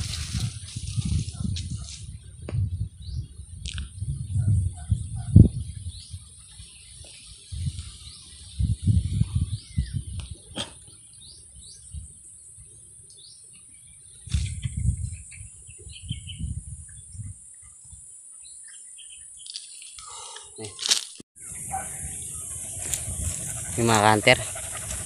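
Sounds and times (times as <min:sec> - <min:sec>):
low rumbling on microphone: 0:00.0 - 0:06.3, 0:08.5 - 0:10.5
small birds chirping: 0:04.4 - 0:20.8, 0:21.4 - 0:25.0.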